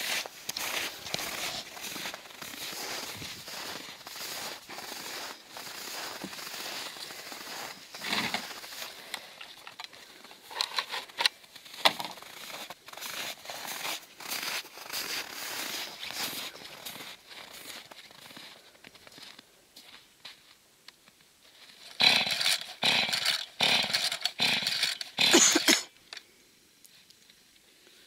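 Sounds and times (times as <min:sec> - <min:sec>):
footsteps crunching in snow: 0:00.0 - 0:20.6.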